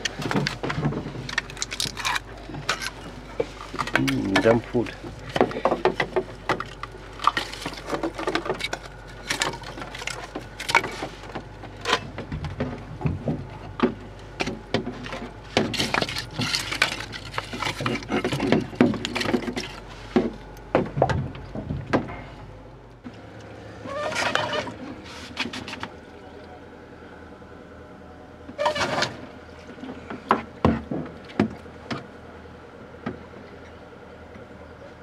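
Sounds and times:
wood clattering against metal firebox: 0.0 - 22.3.

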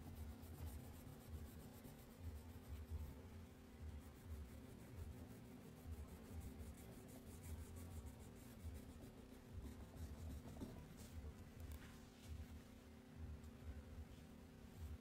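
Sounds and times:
faint low rumble: 0.1 - 15.0
crayon scratching on paper: 4.0 - 11.2.

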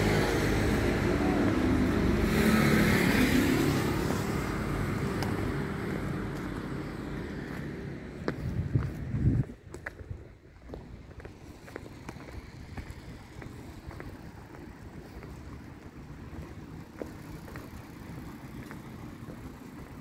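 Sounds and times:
low street rumble: 0.0 - 20.0
wind on microphone: 8.3 - 14.3.

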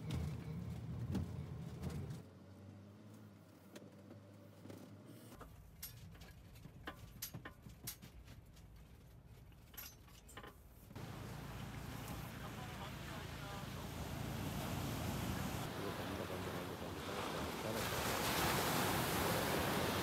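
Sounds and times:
low vehicle hum: 10.9 - 17.8.

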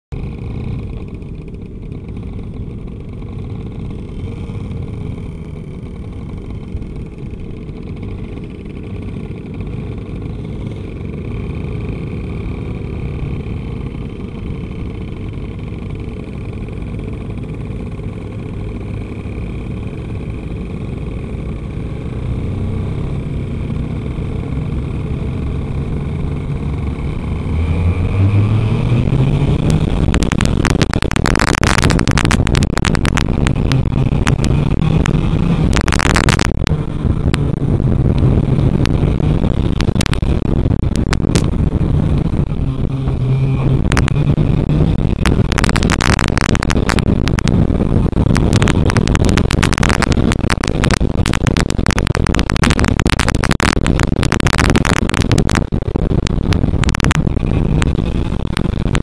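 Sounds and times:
kart engine running and revving: 0.1 - 59.0.

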